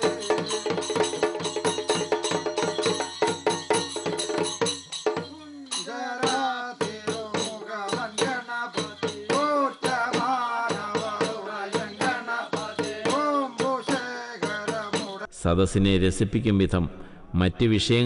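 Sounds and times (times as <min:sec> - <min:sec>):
sharp percussion strikes: 0:00.0 - 0:15.3
man chanting: 0:05.3 - 0:18.0.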